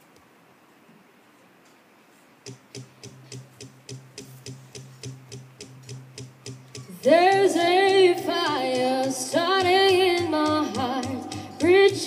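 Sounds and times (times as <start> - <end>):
faint muted guitar strumming: 2.5 - 12.0.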